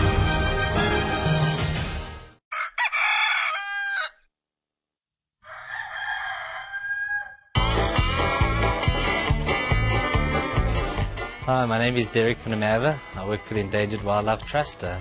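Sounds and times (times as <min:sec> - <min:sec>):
background music: 0:00.0 - 0:02.4, 0:07.6 - 0:15.0
rooster crowing: 0:02.5 - 0:04.3, 0:05.4 - 0:07.6.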